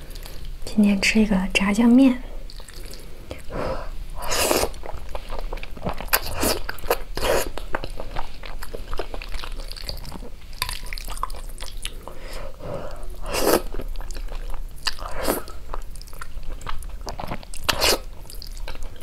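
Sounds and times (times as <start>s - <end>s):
wet chewing: 2.5s - 3.5s, 4.2s - 19.0s
noodle slurps: 4.2s - 4.8s, 13.2s - 13.7s, 17.6s - 18.1s.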